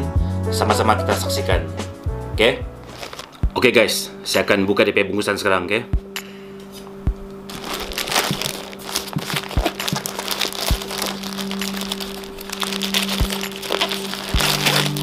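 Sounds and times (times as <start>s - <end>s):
background music sustained tones: 0.0s - 15.0s
plastic mailer crinkling: 2.9s - 3.4s, 7.5s - 15.0s.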